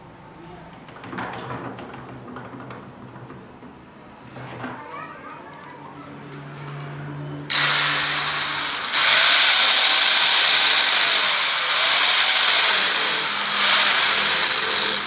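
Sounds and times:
angle grinder grinding steel: 0:07.5 - 0:15.0.

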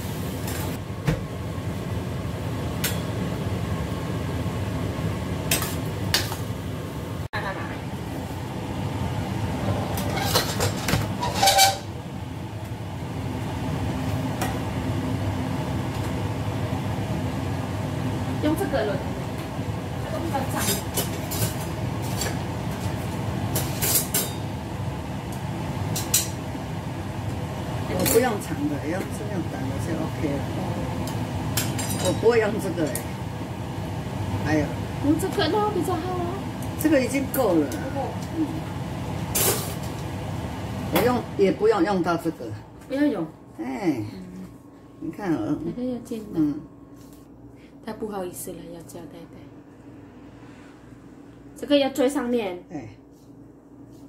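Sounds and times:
aromatics sizzling in oil: 0:00.0 - 0:00.9
steady low hum: 0:00.0 - 0:54.0.

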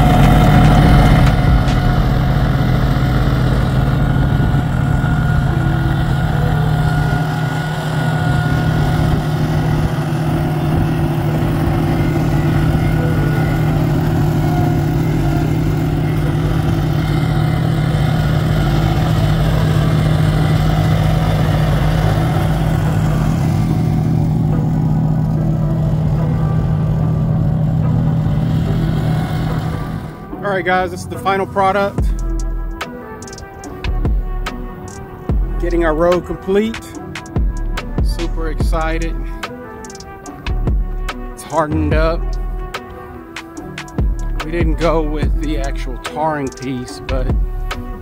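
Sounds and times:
steel drums rolling over asphalt: 0:00.0 - 0:40.8
roller engine humming: 0:00.0 - 0:48.0.

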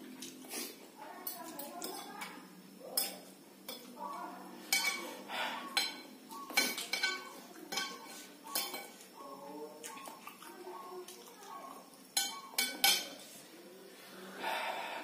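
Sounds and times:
cutlery clinking on ceramic plate: 0:04.7 - 0:05.1, 0:05.7 - 0:09.0, 0:12.2 - 0:13.2.

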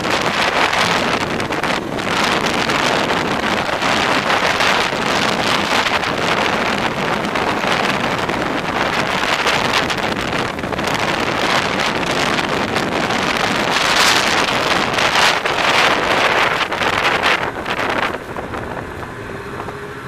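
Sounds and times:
snowmobile engine: 0:00.0 - 0:20.0
wind noise on microphone: 0:00.0 - 0:20.0.

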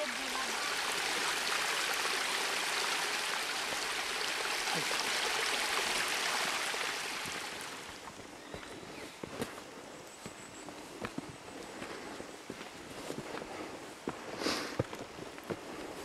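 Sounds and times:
stream rushing over rocks: 0:00.0 - 0:08.2.

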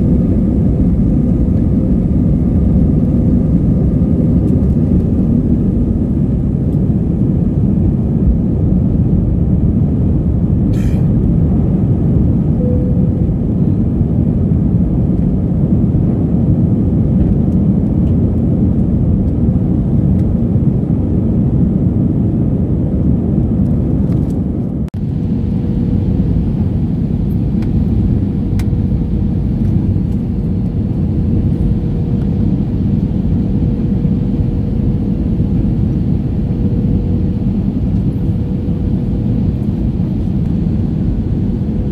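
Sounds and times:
aircraft cabin engine rumble: 0:00.0 - 0:41.9
faint steady hum: 0:10.9 - 0:16.3.

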